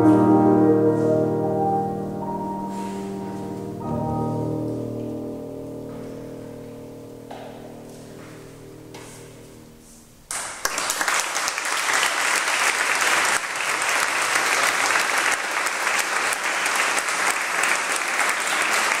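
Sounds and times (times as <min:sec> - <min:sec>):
piano and brass chord: 0:00.0 - 0:10.3
audience applause: 0:10.3 - 0:19.0.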